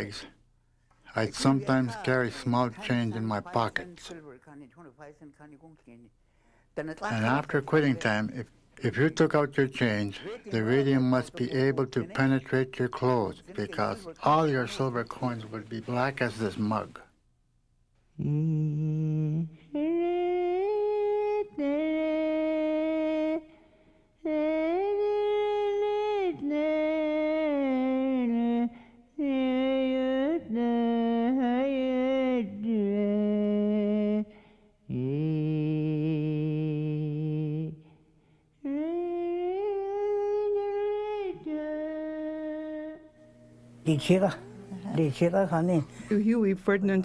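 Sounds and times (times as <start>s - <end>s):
breaths: 6.2s - 6.8s, 23.5s - 24.2s, 28.7s - 29.1s, 34.3s - 34.8s, 37.8s - 38.6s
person humming a melody: 18.2s - 23.6s, 24.2s - 34.3s, 34.9s - 38.0s, 38.6s - 43.4s.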